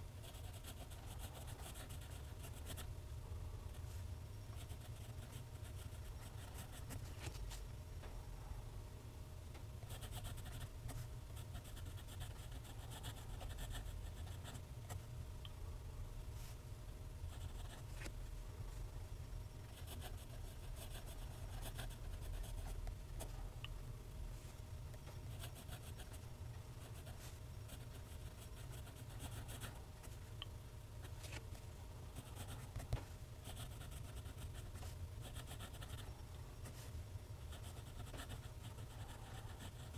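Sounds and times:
steady low hum: 0.0 - 39.9
pen nib scratching paper: 32.2 - 36.1, 37.5 - 39.9.

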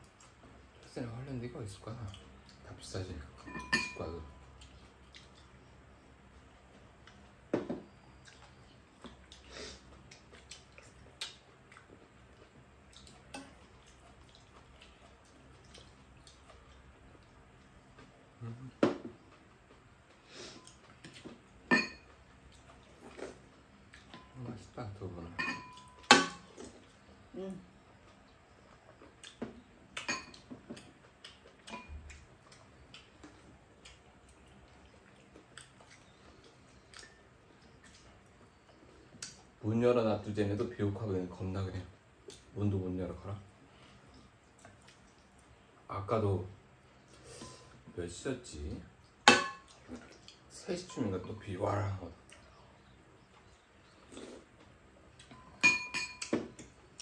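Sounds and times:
utensils tapping bowls and pan: 55.4 - 56.5.

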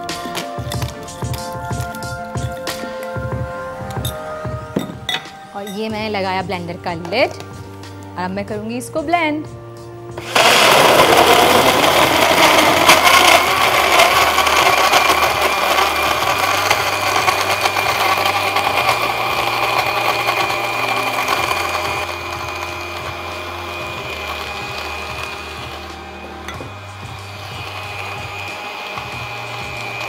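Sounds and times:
blender running: 10.2 - 30.0.

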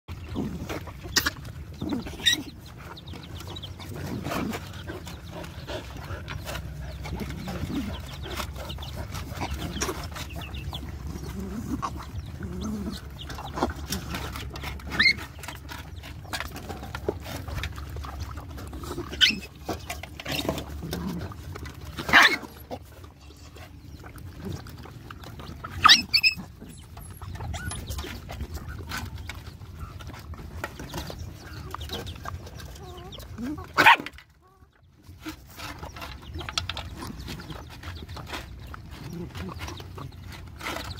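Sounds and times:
puppies chewing and lapping: 0.1 - 40.9
puppies growling: 0.1 - 40.9.

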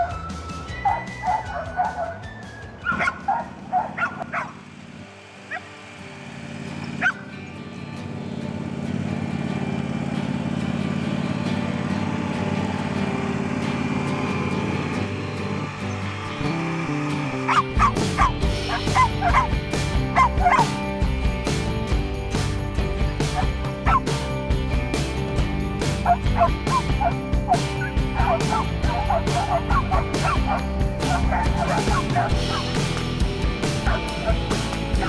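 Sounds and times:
dogs barking and yipping: 0.0 - 4.8, 5.5 - 5.8, 6.8 - 7.4, 17.3 - 21.0, 23.3 - 24.2, 25.9 - 33.0, 33.7 - 35.0
lawn tractor engine running: 2.8 - 35.0.

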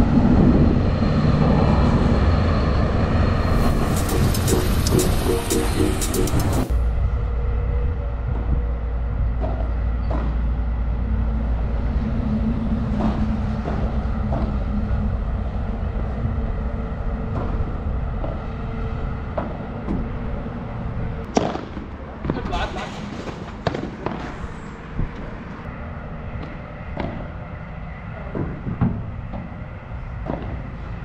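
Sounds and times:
low rumble: 0.0 - 21.3.

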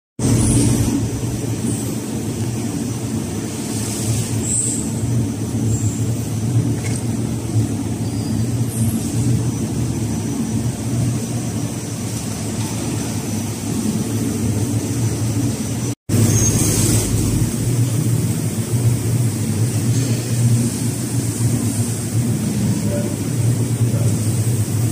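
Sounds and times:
low mechanical drone: 0.2 - 24.9.

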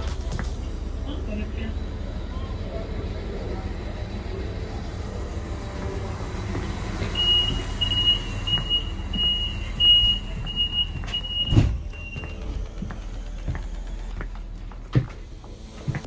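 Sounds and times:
train carriage rumble: 0.0 - 16.0
door warning beeps: 7.0 - 12.6
thump: 11.4 - 11.9.

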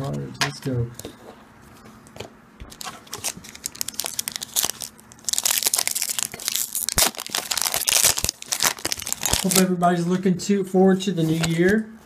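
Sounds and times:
foil wrapper crinkling and tearing: 2.7 - 9.7.

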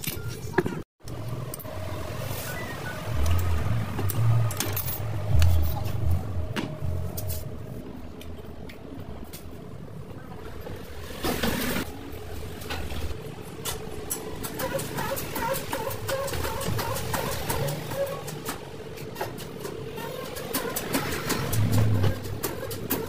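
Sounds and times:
low rumble: 3.1 - 8.6.

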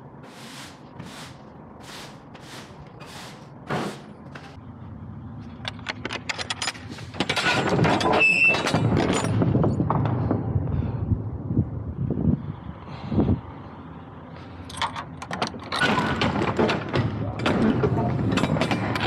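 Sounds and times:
broom sweeping: 0.2 - 4.6
knocks and rattles: 5.6 - 10.4, 14.8 - 19.0.

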